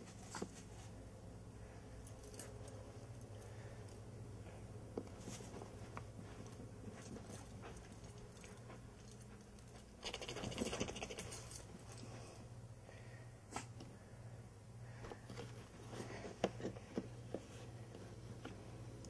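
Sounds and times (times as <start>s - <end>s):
puppy paws pattering and clicking: 4.9s - 12.3s.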